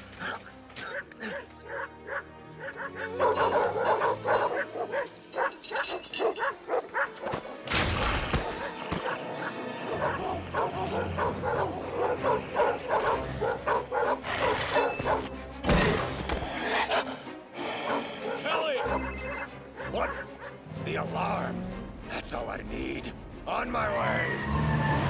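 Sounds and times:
dramatic music: 0:00.0 - 0:25.0
dogs barking: 0:00.8 - 0:07.6, 0:08.3 - 0:15.5, 0:16.5 - 0:20.7.

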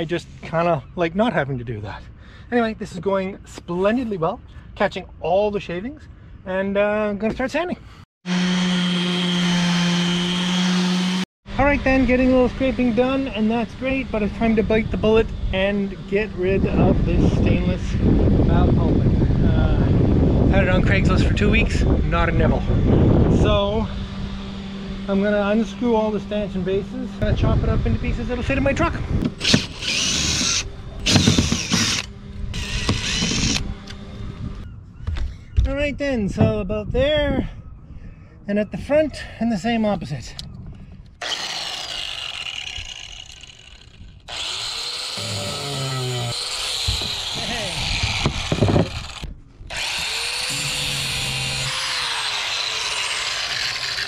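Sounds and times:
angle grinder cutting steel: 0:08.2 - 0:11.3, 0:29.3 - 0:34.0, 0:41.2 - 0:54.0
cordless drill high-pitched whir: 0:29.4 - 0:34.0, 0:41.2 - 0:54.0.

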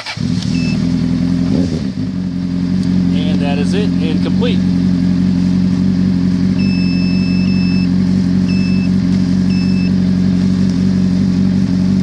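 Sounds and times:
motorcycle engine idling: 0:00.0 - 0:12.0
high electronic beeps: 0:00.5 - 0:00.8, 0:06.6 - 0:07.9, 0:08.5 - 0:08.9, 0:09.5 - 0:10.0.

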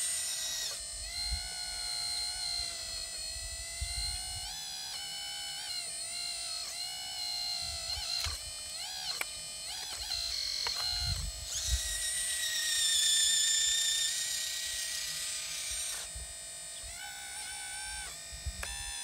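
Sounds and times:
hydraulic pump motor whining: 0:00.0 - 0:19.0.

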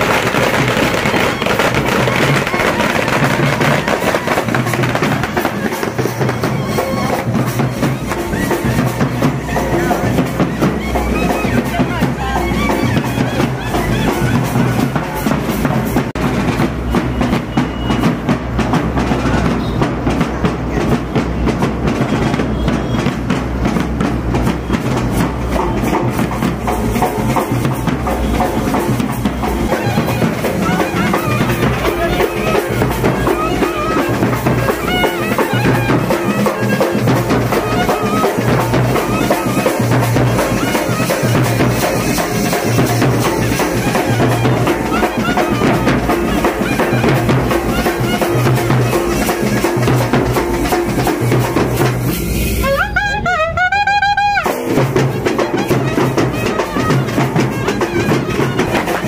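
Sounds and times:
steady drumming: 0:00.0 - 0:59.0
clarinet melody: 0:05.3 - 0:15.3, 0:29.3 - 0:50.2, 0:52.4 - 0:59.0.

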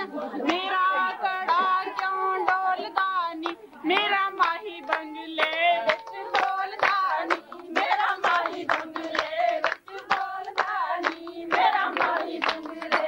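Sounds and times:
women singing folk couplets: 0:00.0 - 0:13.0
hand-clapping: 0:00.4 - 0:13.0.

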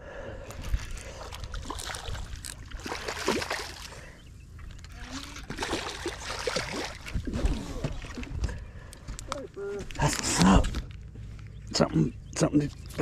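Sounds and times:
water splashing and trickling: 0:00.6 - 0:08.6.

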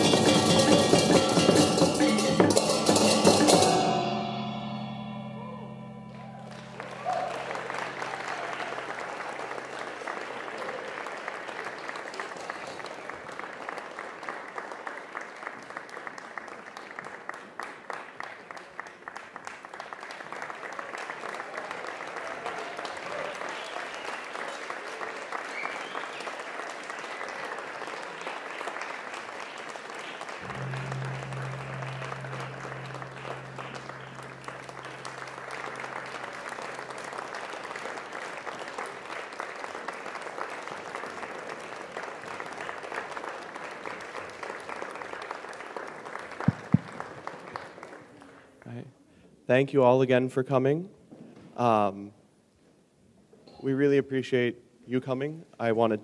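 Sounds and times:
audience applauding: 0:04.8 - 0:48.8
low steady hum: 0:30.4 - 0:38.0.

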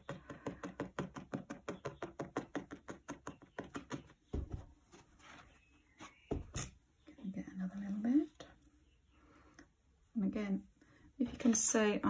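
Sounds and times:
felting needle tapping: 0:00.0 - 0:04.6.

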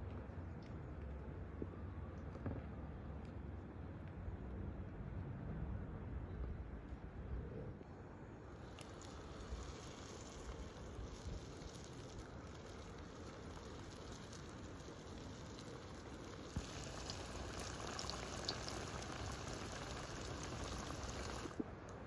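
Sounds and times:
dough sizzling in hot oil: 0:08.6 - 0:21.6
oil popping: 0:08.6 - 0:21.6.

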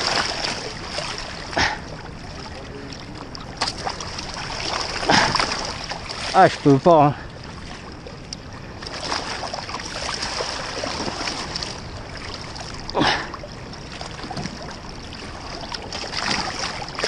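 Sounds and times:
river rushing: 0:00.0 - 0:17.0
water splashing around a hand: 0:03.6 - 0:06.8, 0:15.4 - 0:17.0.

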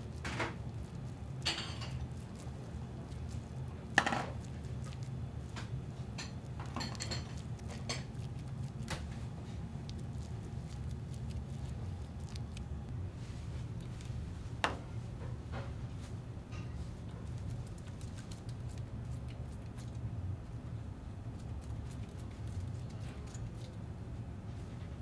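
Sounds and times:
utensils and dishes clinking: 0:01.4 - 0:02.1, 0:06.2 - 0:08.3.

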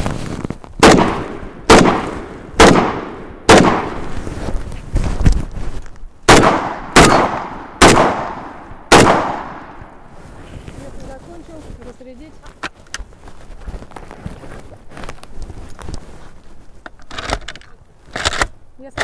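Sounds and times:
shotgun shots: 0:00.8 - 0:04.2, 0:06.3 - 0:09.9.

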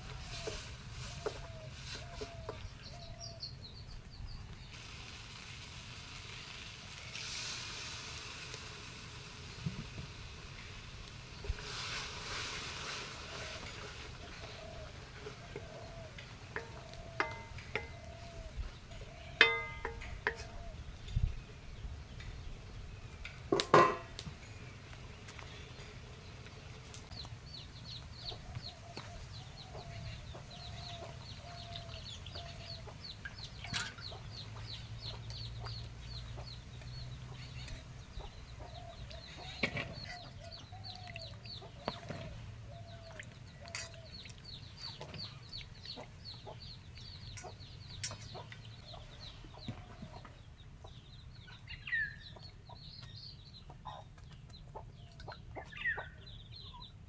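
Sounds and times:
chickens clucking: 0:00.0 - 0:03.3, 0:13.1 - 0:20.8, 0:27.9 - 0:57.0.

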